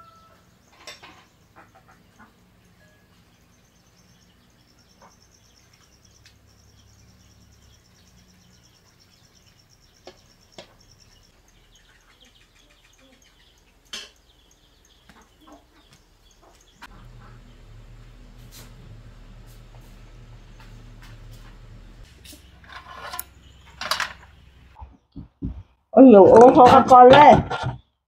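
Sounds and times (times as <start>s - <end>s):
birds chirping: 0.0s - 28.0s
sharp clicks and knocks: 20.5s - 25.7s.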